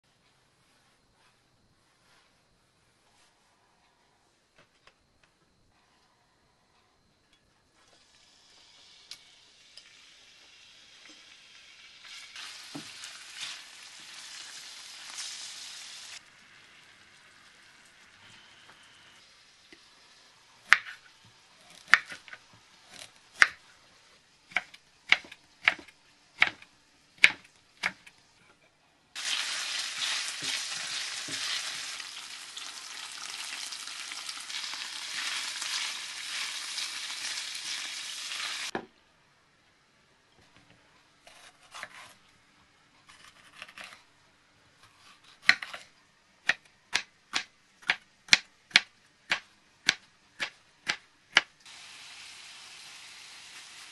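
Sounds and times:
meat sizzling in hot oil: 0:08.0 - 0:18.2, 0:29.2 - 0:38.7, 0:51.7 - 0:53.9
knife chopping on wooden board: 0:24.5 - 0:26.6, 0:27.2 - 0:28.1.

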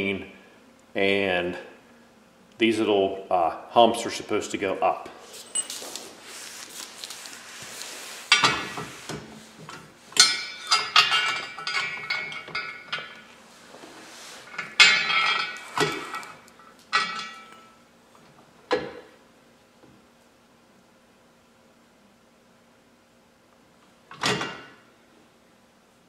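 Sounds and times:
metal brackets and bolts clinking: 0:05.4 - 0:06.0, 0:09.7 - 0:13.3, 0:14.5 - 0:17.8.

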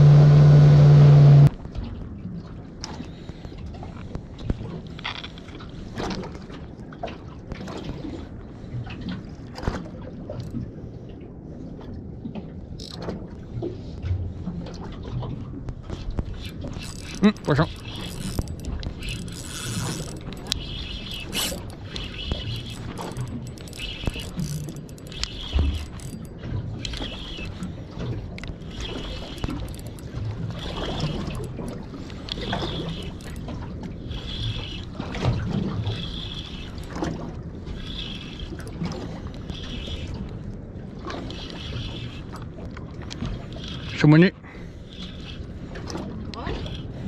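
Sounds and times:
spinning reel gears whirring: 0:12.8 - 0:13.0, 0:16.3 - 0:27.7, 0:28.4 - 0:40.4, 0:41.2 - 0:42.5, 0:43.2 - 0:44.1.

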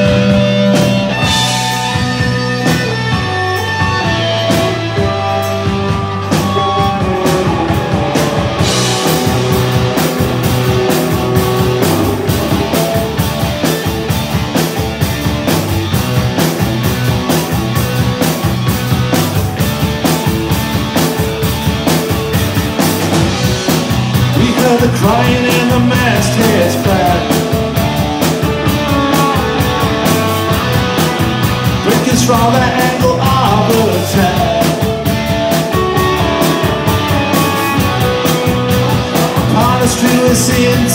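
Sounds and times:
bass guitar: 0:00.0 - 0:40.9
drums: 0:00.0 - 0:40.9
electric guitars: 0:00.0 - 0:40.9
person singing: 0:24.3 - 0:27.6, 0:31.8 - 0:35.1, 0:38.8 - 0:40.9.

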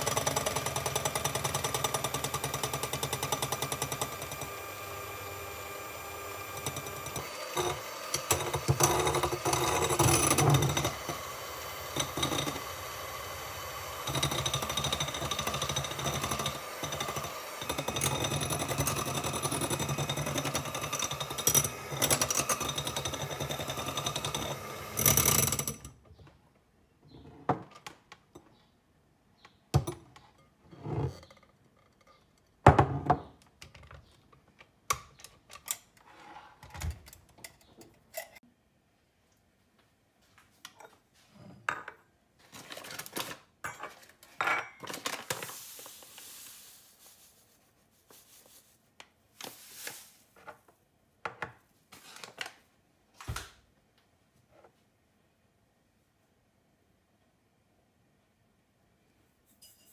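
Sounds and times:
electric hand mixer whirring: 0:00.0 - 0:25.7
beaters and glass bowls clinking: 0:59.5 - 0:59.9.

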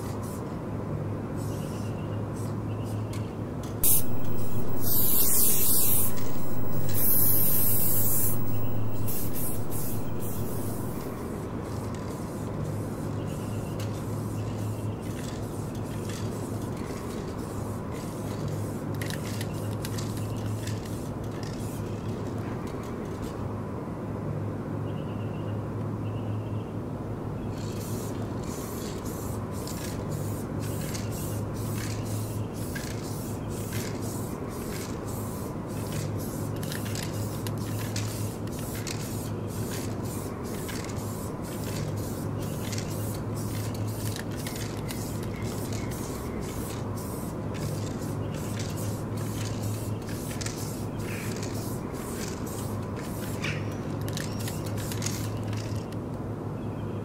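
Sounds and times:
short hissing bursts: 0:03.8 - 0:11.4, 0:30.1 - 0:44.0
steady low hum: 0:03.8 - 0:11.4.

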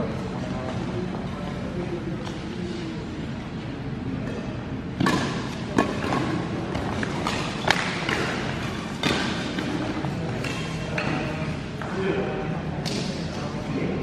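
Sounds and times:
rackets striking shuttlecock: 0:04.2 - 0:11.9, 0:12.8 - 0:13.3.

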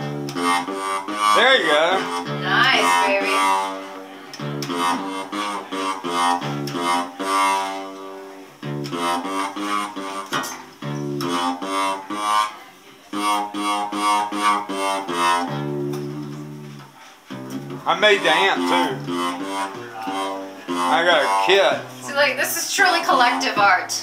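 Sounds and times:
fretless guitar plucked: 0:00.0 - 0:24.0.

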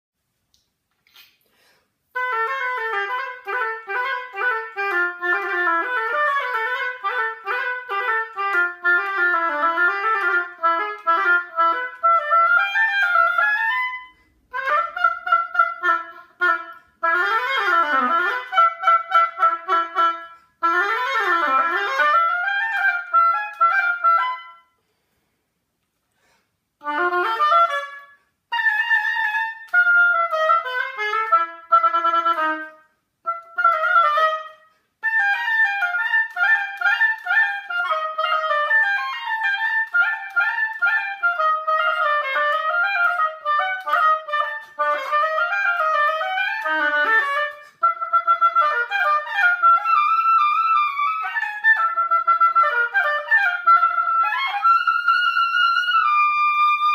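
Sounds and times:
player breathing: 0:01.4 - 0:02.0
solo oboe melody: 0:02.0 - 0:25.0, 0:26.8 - 0:56.9.

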